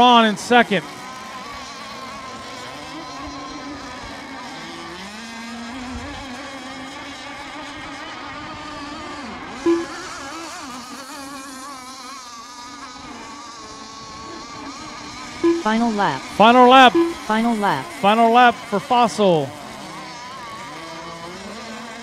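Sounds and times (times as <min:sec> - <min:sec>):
racing boat engines whining: 0:00.0 - 0:22.0
short loud tone blip: 0:09.7 - 0:10.0, 0:15.4 - 0:19.5.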